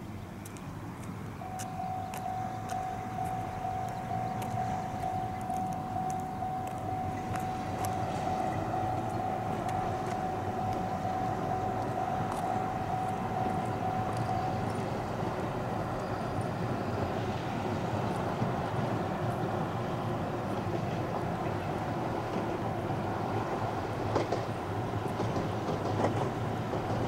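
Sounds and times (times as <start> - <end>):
faint high clicks: 0.4 - 14.9
distant train rumbling: 0.6 - 27.0
thin steady tone: 1.4 - 20.4.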